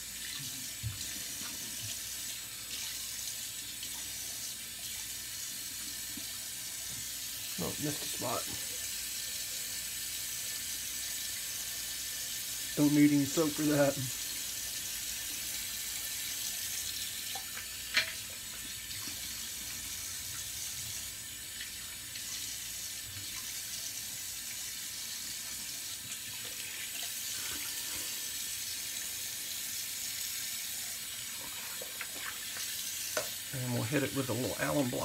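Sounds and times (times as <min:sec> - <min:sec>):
tap running into sink: 0:17.3 - 0:19.2, 0:31.9 - 0:33.4.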